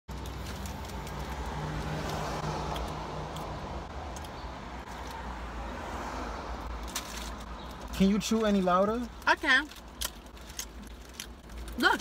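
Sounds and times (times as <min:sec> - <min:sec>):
road and engine noise in car: 0:00.1 - 0:12.0.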